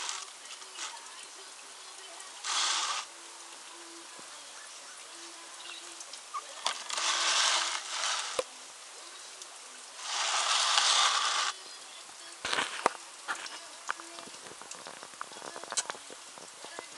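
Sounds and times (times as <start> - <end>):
scratching on plastic tub: 0.0 - 1.3, 2.2 - 3.1, 6.3 - 8.5, 10.0 - 11.6.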